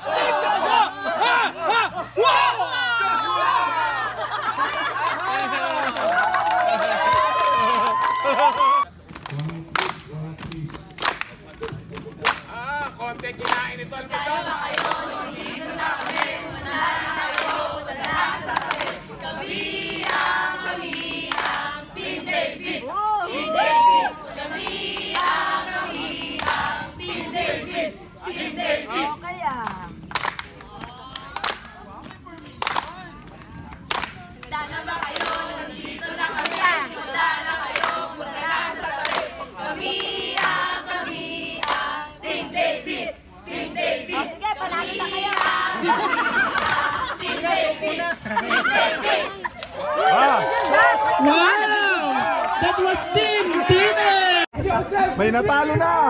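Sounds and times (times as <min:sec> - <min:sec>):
group singing together: 0:00.0 - 0:02.4, 0:12.9 - 0:29.4, 0:34.4 - 0:49.6
hand claps: 0:04.6 - 0:13.8, 0:19.9 - 0:21.6, 0:26.2 - 0:27.3, 0:29.6 - 0:36.8, 0:37.7 - 0:38.0, 0:39.0 - 0:40.7, 0:41.6 - 0:41.9, 0:45.3 - 0:45.6, 0:46.5 - 0:46.9.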